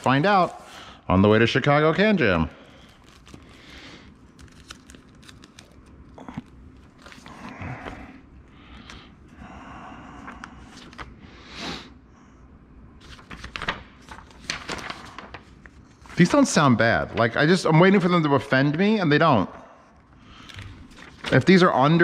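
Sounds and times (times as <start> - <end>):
paper and plastic crinkling: 0.0 - 1.0, 2.6 - 8.0, 13.0 - 18.0, 20.3 - 22.0.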